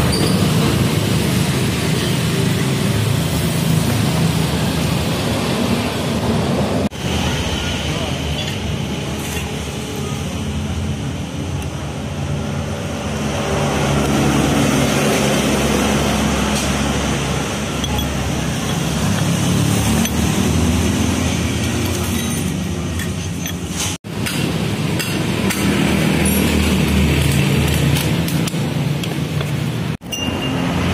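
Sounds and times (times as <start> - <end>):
metal knocks and clinks: 17.8 - 20.4, 30.0 - 30.9.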